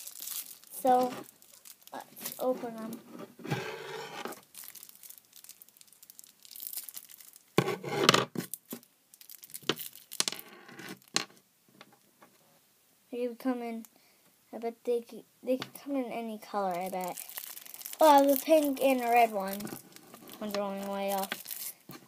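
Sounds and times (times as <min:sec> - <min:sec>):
plastic packaging tearing and crinkling: 0:00.0 - 0:02.9, 0:04.2 - 0:07.6, 0:08.3 - 0:10.4, 0:16.6 - 0:22.0.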